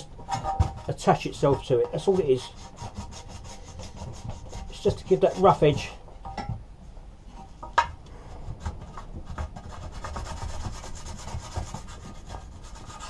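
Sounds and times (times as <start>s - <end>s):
sanding block on sheet metal: 0.0s - 5.8s, 8.6s - 13.0s.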